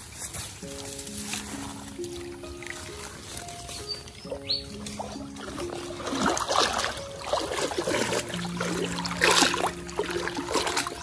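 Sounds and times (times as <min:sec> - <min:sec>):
wading through shallow water: 0:00.0 - 0:11.0.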